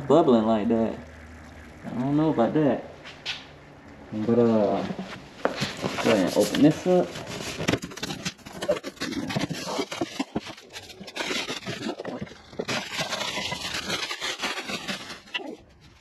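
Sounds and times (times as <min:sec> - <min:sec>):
cardboard box scraping and rustling: 0:04.7 - 0:16.0.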